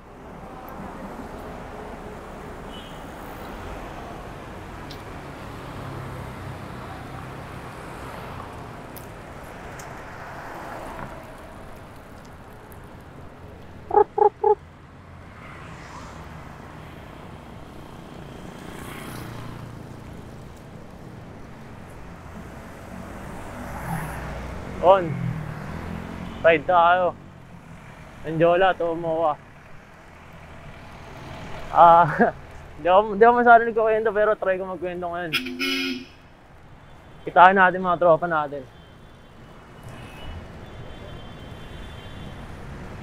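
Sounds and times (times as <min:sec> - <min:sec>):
street traffic noise: 0:00.0 - 0:43.0
short loud beeps: 0:35.3 - 0:36.2.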